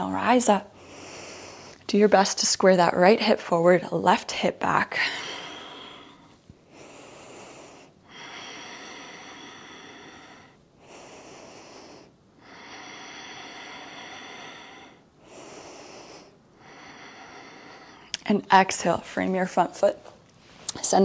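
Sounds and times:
woman breathing deeply: 0:00.0 - 0:01.9, 0:04.9 - 0:18.2.

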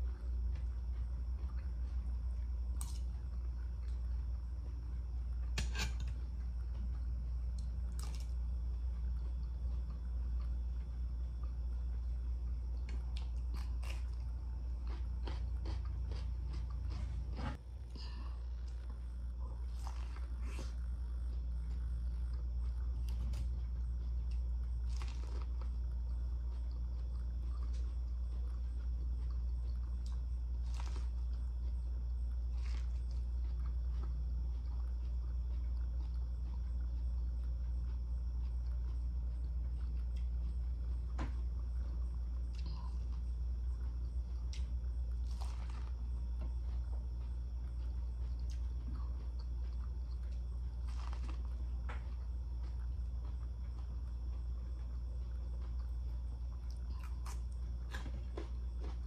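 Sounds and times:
biting and chewing corn: 0:00.0 - 0:59.0
low hum: 0:00.0 - 0:59.0
spoon scraping ceramic bowl: 0:05.6 - 0:06.2.

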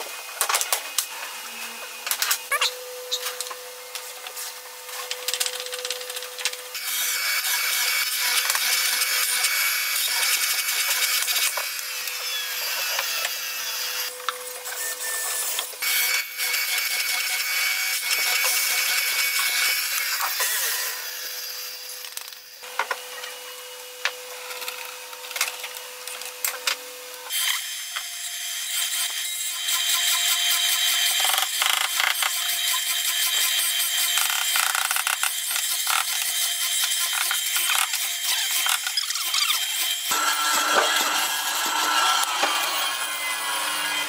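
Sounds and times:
mortising machine cutting wood: 0:27.3 - 0:44.0.

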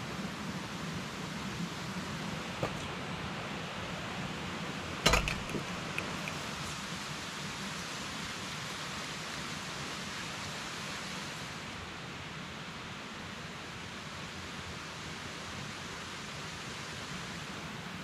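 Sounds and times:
sharp knock: 0:05.1 - 0:05.7.

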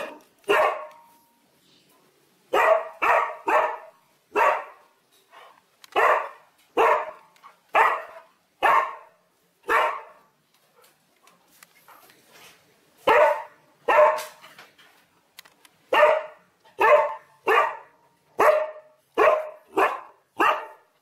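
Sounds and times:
dog barking: 0:00.0 - 0:01.1, 0:02.5 - 0:04.8, 0:06.0 - 0:10.3, 0:13.0 - 0:14.4, 0:15.9 - 0:20.9.

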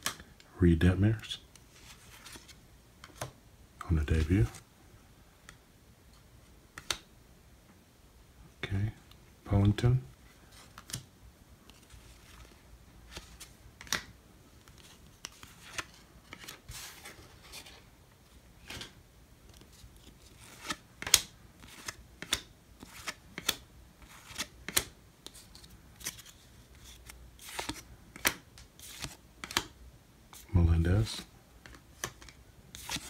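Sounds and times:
cards flicking and snapping: 0:13.1 - 0:16.5, 0:20.4 - 0:23.6, 0:24.2 - 0:25.4, 0:26.9 - 0:29.8.

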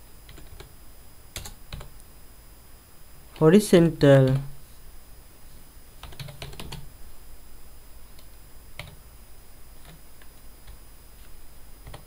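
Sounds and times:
low steady hum: 0:00.0 - 0:12.0
computer keyboard keystrokes: 0:00.3 - 0:00.7, 0:01.4 - 0:01.9, 0:06.0 - 0:06.8, 0:08.2 - 0:09.0.

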